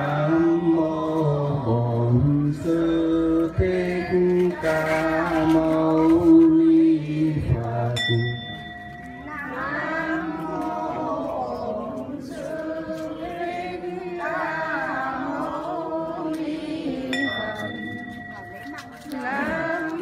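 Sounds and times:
devotional chanting with music: 0:00.0 - 0:20.0
high ringing tone: 0:08.0 - 0:10.2, 0:17.1 - 0:19.9.

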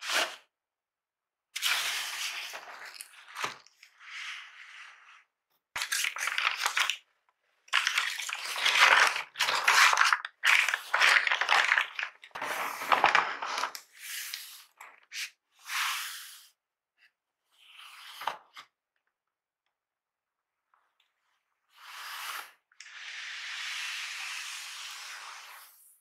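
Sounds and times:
packing paper crinkling: 0:02.5 - 0:03.7, 0:05.8 - 0:07.0, 0:07.7 - 0:13.8.

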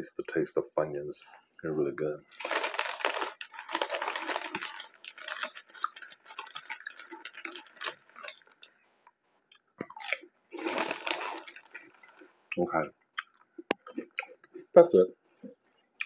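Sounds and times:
person chewing crunchy snacks: 0:02.3 - 0:08.7, 0:09.5 - 0:12.6, 0:13.2 - 0:14.7.

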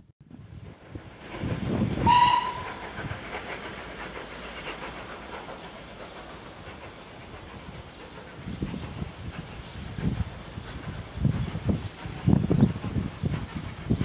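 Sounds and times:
steam locomotive chuffs: 0:00.3 - 0:14.0
steam locomotive whistle: 0:02.0 - 0:02.8.

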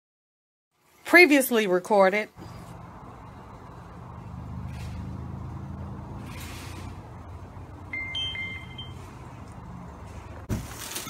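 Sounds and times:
engine humming: 0:02.4 - 0:11.0
high steady tones: 0:07.8 - 0:09.4.

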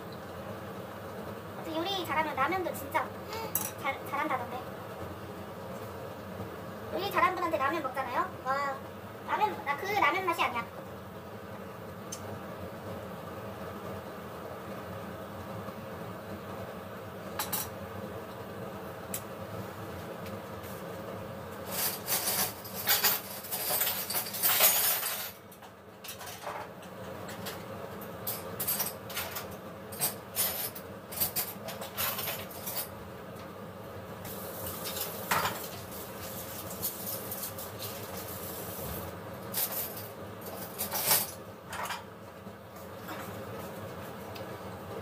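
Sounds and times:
dishes and utensils clattering: 0:21.9 - 0:25.4, 0:34.8 - 0:35.7, 0:39.6 - 0:42.1.

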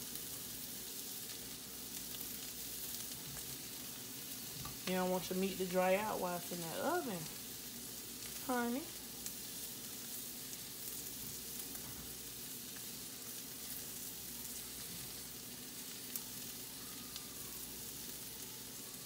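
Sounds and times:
vegetables sizzling in a skillet: 0:00.0 - 0:19.0.

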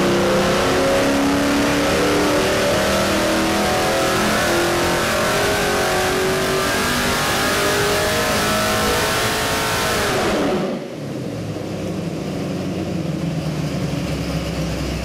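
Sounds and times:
engine revving at full throttle: 0:00.0 - 0:11.1.

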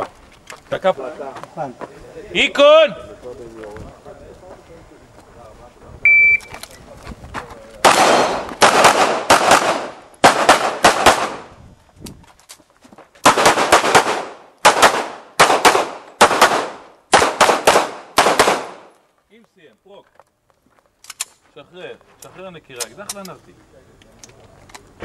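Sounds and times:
shot timer beep: 0:06.1 - 0:06.5
pistol shots: 0:07.8 - 0:11.5, 0:13.2 - 0:18.9.

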